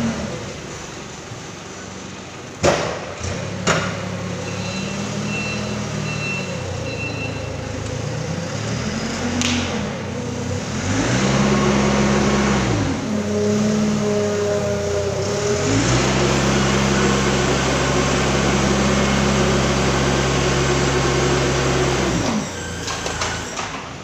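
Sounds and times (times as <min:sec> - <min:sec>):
forklift engine revving: 0:00.0 - 0:24.0
faint high beeps: 0:04.4 - 0:07.7.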